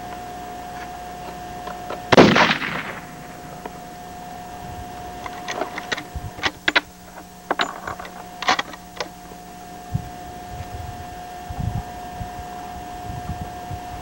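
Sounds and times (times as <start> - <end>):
rifle bolt clicking and clacking: 5.2 - 9.1.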